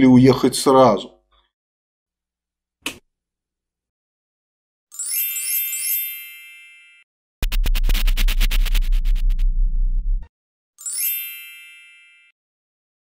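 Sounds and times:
bright chiming jingle: 4.9 - 7.0, 10.8 - 12.4
deep steady tone: 7.4 - 10.3
fast electronic pulsing beat: 7.4 - 10.3.

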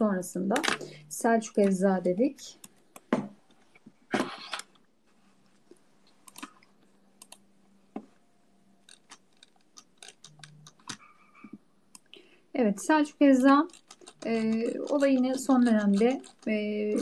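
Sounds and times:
keyboard and mouse clicks: 0.5 - 1.0, 6.1 - 7.5, 8.8 - 12.2, 13.0 - 17.0.

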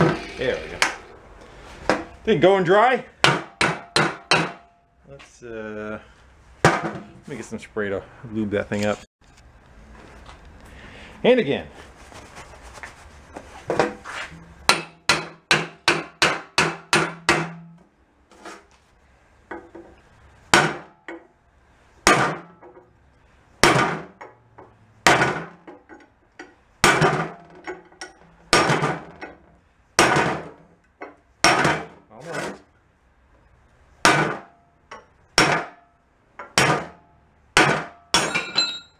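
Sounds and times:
hammer striking steel punch: 3.2 - 4.8, 14.7 - 17.8, 35.4 - 35.9, 37.6 - 38.9.

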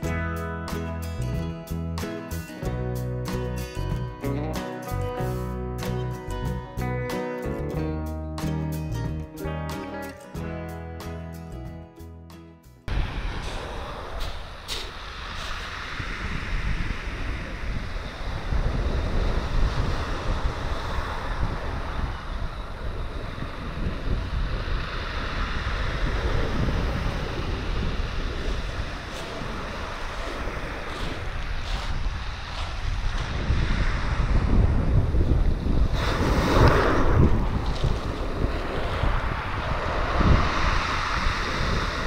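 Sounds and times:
wind buffeting microphone: 12.9 - 42.0.

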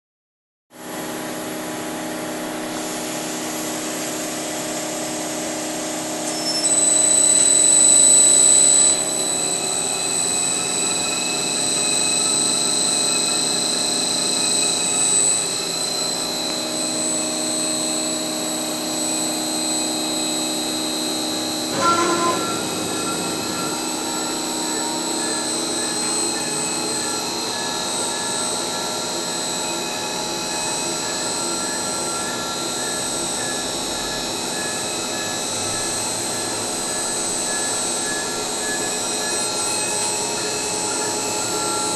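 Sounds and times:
milling machine whine: 0.9 - 41.9
high-pitched cutting whine: 3.8 - 41.9.

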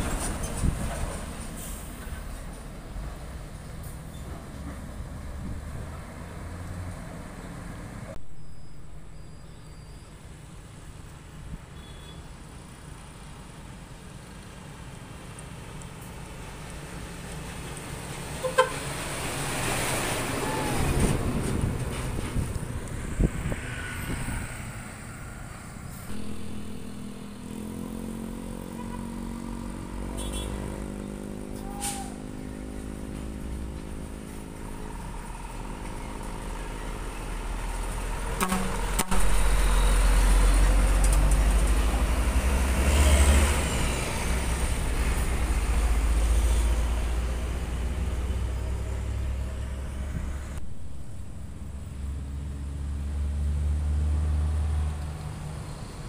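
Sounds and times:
truck passing with tyre noise: 0.0 - 56.0
truck engine hum: 12.4 - 56.0.

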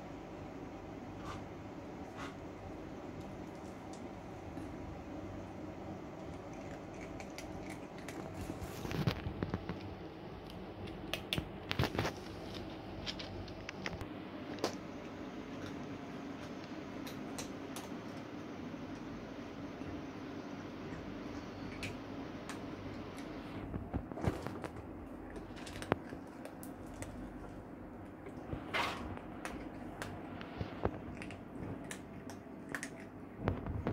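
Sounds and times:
cats crunching dry kibble: 3.0 - 33.9
kibble rustling: 6.1 - 10.7, 23.7 - 33.9.

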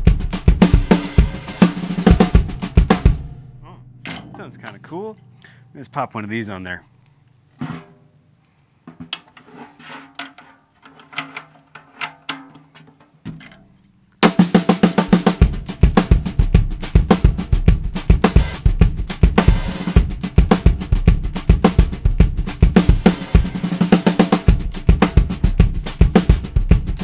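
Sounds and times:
drum kit groove: 0.0 - 6.8, 14.2 - 27.0.

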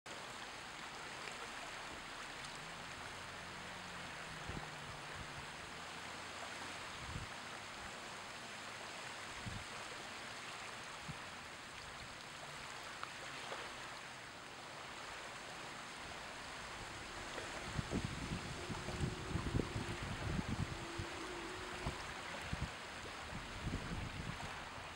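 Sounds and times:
small waves washing on shore: 0.1 - 24.9.

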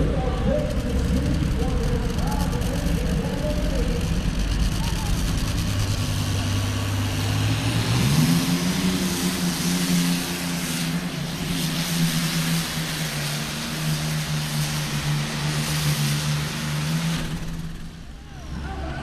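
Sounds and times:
aircraft engine revving under load: 0.0 - 19.0.

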